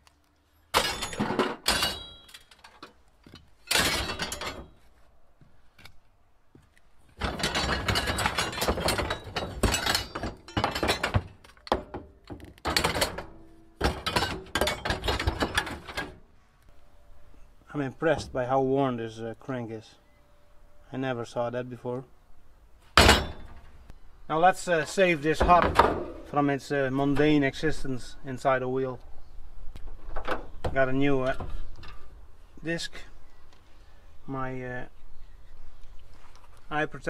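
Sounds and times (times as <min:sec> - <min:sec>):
metal clattering in scrap container: 0:00.8 - 0:02.8, 0:03.6 - 0:04.8, 0:07.2 - 0:12.0, 0:12.7 - 0:16.2.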